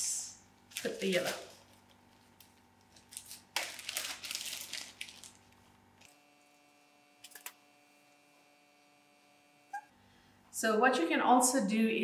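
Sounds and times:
plastic bag crinkling: 0.6 - 6.1.

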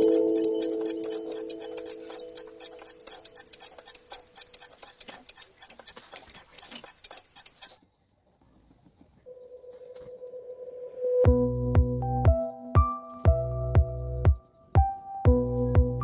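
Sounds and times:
electronic music: 0.0 - 2.9
held synth tone: 0.0 - 3.2
ticking chiming music: 0.0 - 5.4.

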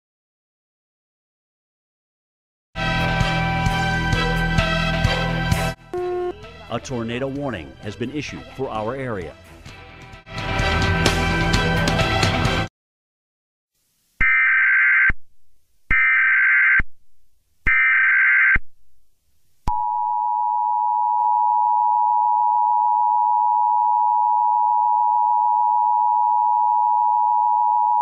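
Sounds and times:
two-tone attention signal: 6.0 - 6.4.

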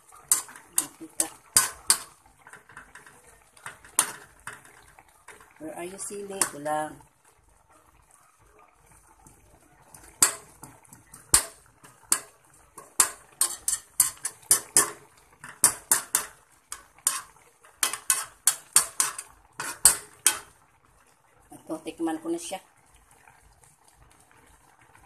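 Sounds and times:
metal spoon clinking on pan: 0.0 - 6.7, 9.9 - 20.6.

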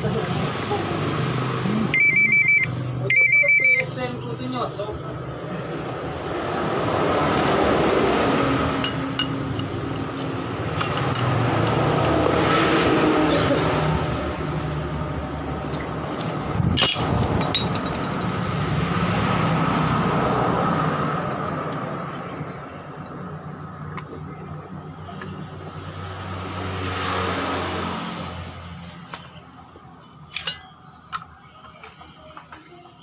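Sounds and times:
vehicle hum: 0.0 - 33.0
metal parts clinking: 16.8 - 18.2, 30.3 - 31.2.

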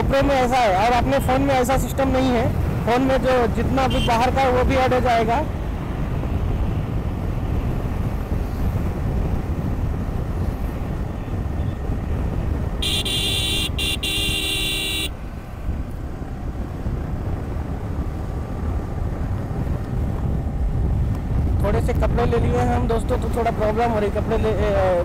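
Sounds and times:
motorcycle engine rumble: 0.0 - 25.0
wind: 0.0 - 25.0
vehicle horn: 3.9 - 4.2, 12.8 - 15.2.

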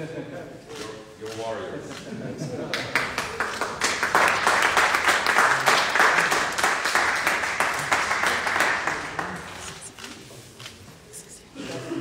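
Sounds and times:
crowd applauding: 2.6 - 10.0.

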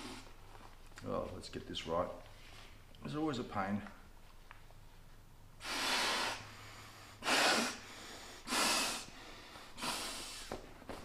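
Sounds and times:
puffs of breath into valve: 0.0 - 0.4, 5.6 - 10.6.

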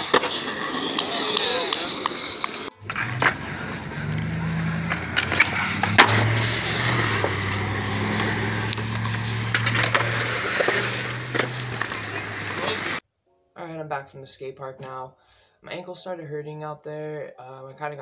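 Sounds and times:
skateboard popping and landing clacks: 0.0 - 3.6, 4.9 - 6.4, 9.0 - 13.0
skateboard wheels rolling on concrete: 0.0 - 13.0.

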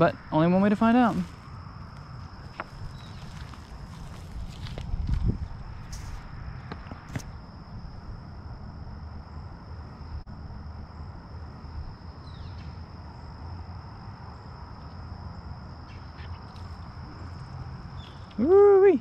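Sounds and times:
bird chirps: 17.9 - 18.4.

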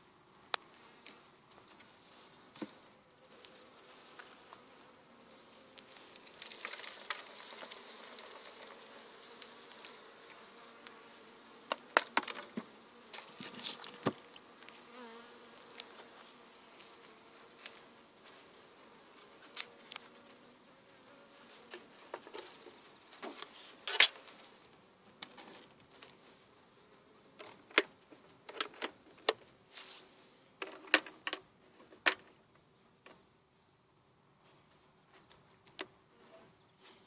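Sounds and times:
bees buzzing: 2.5 - 22.6.

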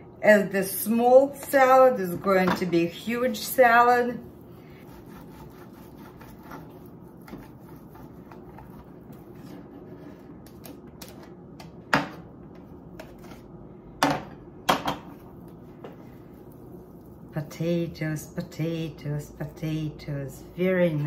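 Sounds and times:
potato scraping on plastic grater: 4.8 - 10.2.

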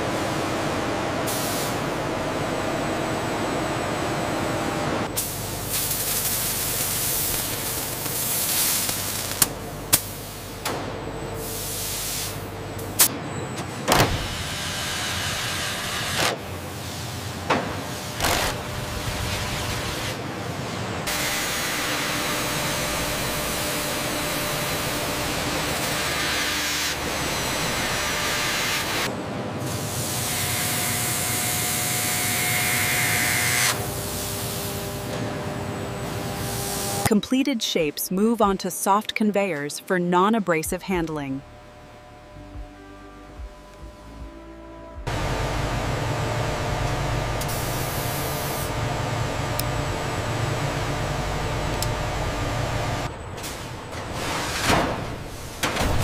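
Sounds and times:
steady mechanical hum: 0.0 - 56.0
hiss: 5.2 - 10.5.

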